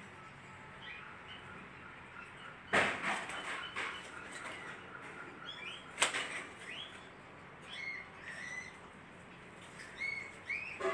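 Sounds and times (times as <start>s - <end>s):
budgerigar chirping: 7.6s - 8.8s.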